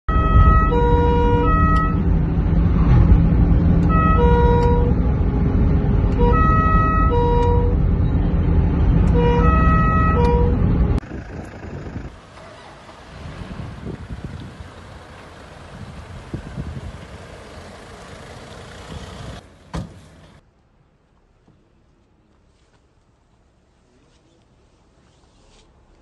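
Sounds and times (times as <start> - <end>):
police siren two-tone: 0.1 - 2.1, 3.8 - 5.0, 6.1 - 7.8, 9.0 - 10.8
car engine and road noise: 0.1 - 26.0.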